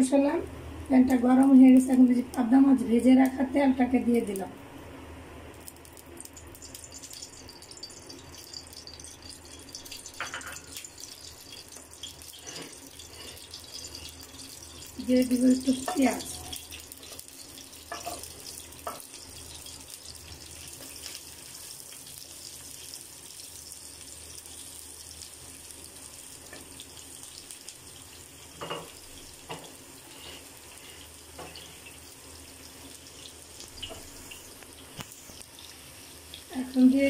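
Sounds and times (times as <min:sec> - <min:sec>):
onions sizzling in hot oil: 0:00.0 - 0:04.5, 0:05.4 - 0:37.0
spatula scraping and tapping wok: 0:08.4 - 0:14.9, 0:15.7 - 0:21.6, 0:28.6 - 0:32.0.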